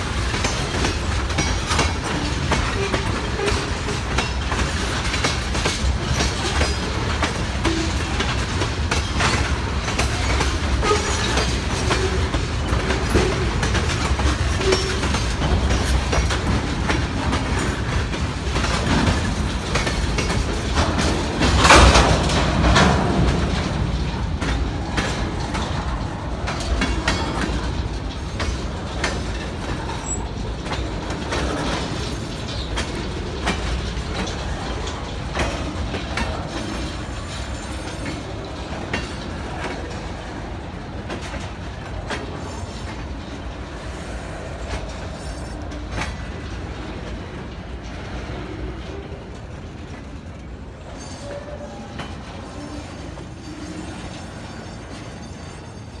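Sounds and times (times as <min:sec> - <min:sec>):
train rumble: 0:00.0 - 0:56.0
train wheels clacking on rails: 0:00.0 - 0:56.0.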